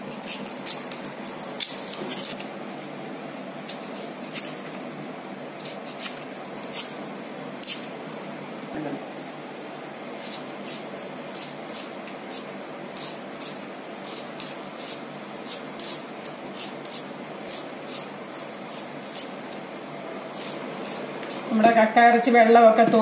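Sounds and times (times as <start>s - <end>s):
knife scraping ginger: 0.0s - 2.4s, 3.6s - 4.6s, 5.6s - 7.0s, 7.6s - 7.9s, 9.8s - 19.7s, 20.3s - 21.6s.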